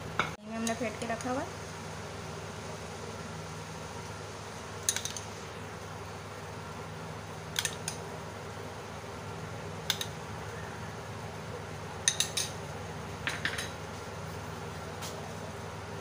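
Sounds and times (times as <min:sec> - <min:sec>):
spoon clinking against bowl: 0:12.0 - 0:12.5.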